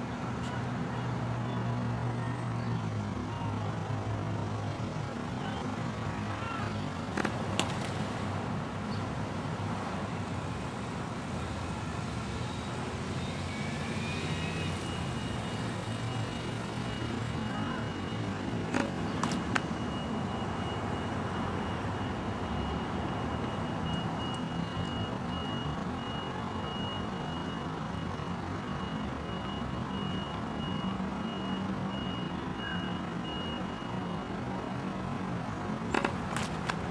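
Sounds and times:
road traffic rumble: 0.0 - 36.9.

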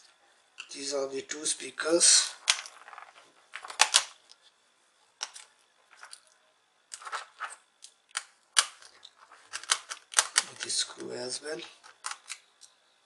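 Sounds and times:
plastic parts clicking and rattling: 2.4 - 4.2, 6.9 - 11.1, 11.7 - 12.7.

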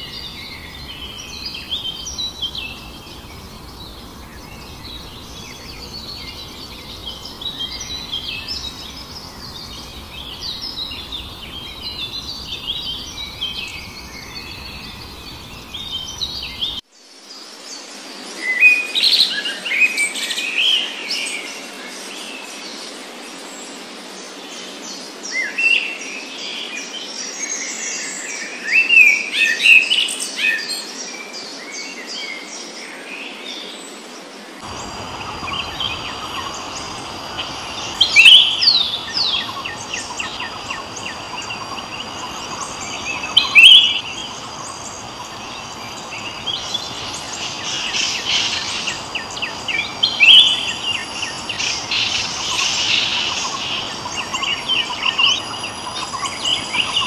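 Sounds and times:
birds chirping and singing: 0.0 - 16.8, 34.6 - 57.0.

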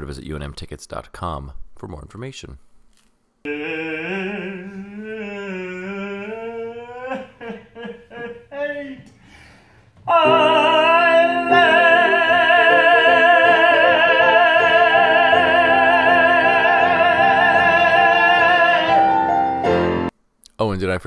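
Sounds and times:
man singing operatic note: 3.5 - 9.1, 10.0 - 19.6.

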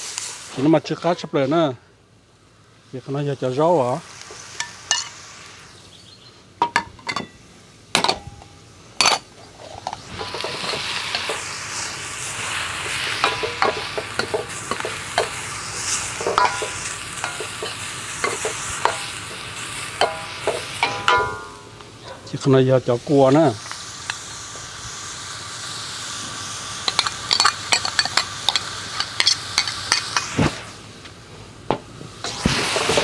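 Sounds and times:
food sizzling in a pan: 0.0 - 1.7, 2.4 - 7.6, 8.4 - 31.0, 32.0 - 33.0
utensil scraping a pan: 9.0 - 11.6, 12.4 - 21.7, 32.3 - 33.0.

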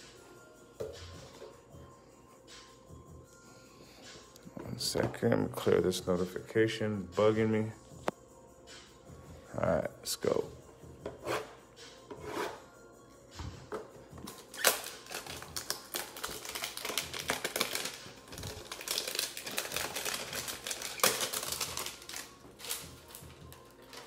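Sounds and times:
plastic and cardboard tearing: 14.2 - 23.2.

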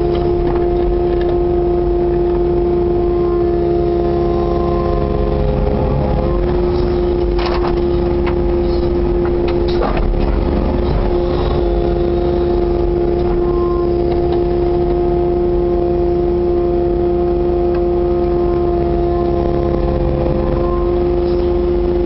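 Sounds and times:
diesel engine running: 0.0 - 22.0
steady whine: 0.0 - 22.0
excavator bucket clunks: 7.2 - 8.5, 9.2 - 11.0.

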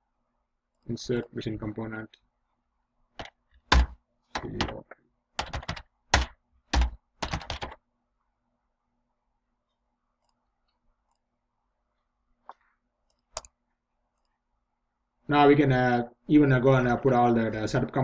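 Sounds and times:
computer keyboard typing: 3.2 - 4.8, 5.4 - 7.8, 13.1 - 13.6.

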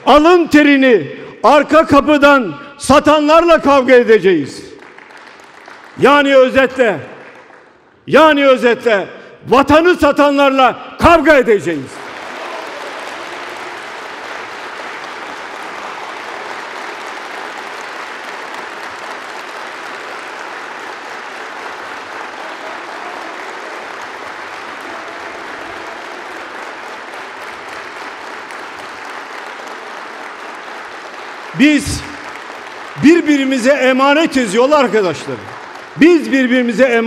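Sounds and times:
audience applauding: 4.7 - 8.0, 11.7 - 37.0.

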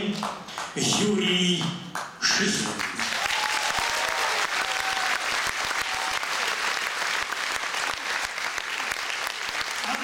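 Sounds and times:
audience applauding: 2.6 - 10.0.

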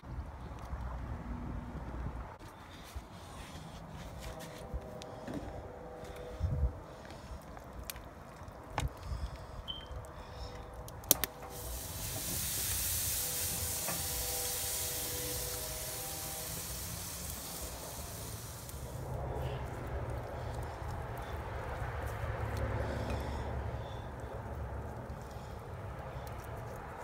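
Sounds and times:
chicken sizzling on a grill: 11.1 - 19.7.

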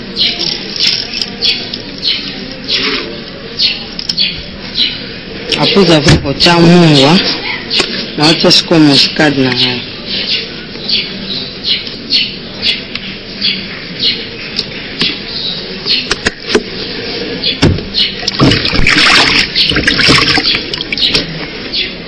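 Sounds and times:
water splashing in plastic basin: 18.2 - 21.3.

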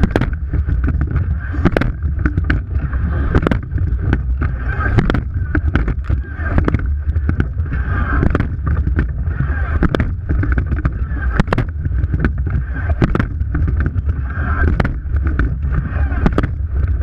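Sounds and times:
knocks: 0.0 - 2.7
water rushing along a hull: 0.0 - 17.0
wind buffeting a camera: 0.0 - 17.0.

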